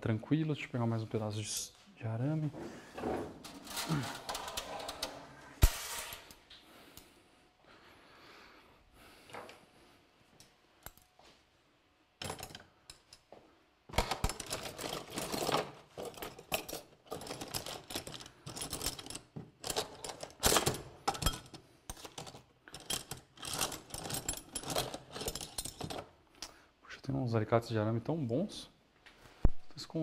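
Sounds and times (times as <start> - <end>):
metal tools clinking and rattling: 3.4 - 5.2, 12.2 - 13.3, 14.1 - 26.2.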